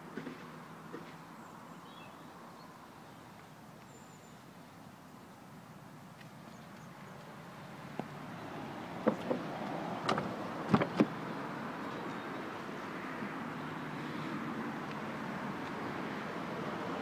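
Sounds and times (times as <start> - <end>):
car door and trim clicks: 10.0 - 11.2.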